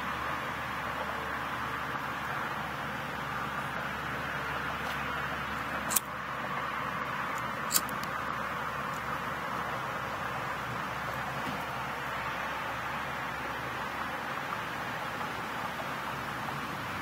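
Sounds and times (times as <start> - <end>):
steady background noise: 0.0 - 17.0
sharp clicks: 5.9 - 6.1, 7.3 - 8.2.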